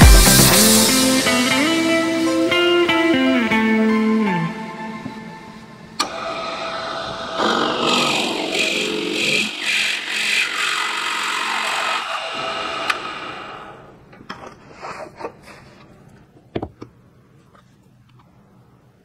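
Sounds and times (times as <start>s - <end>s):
motor winding down: 6.0s - 13.9s.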